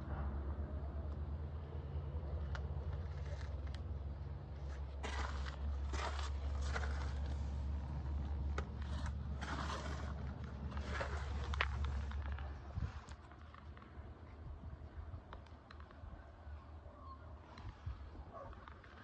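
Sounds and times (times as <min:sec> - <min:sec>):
diesel engine idling: 0:00.0 - 0:12.5
scrapes and rustles: 0:02.4 - 0:14.1.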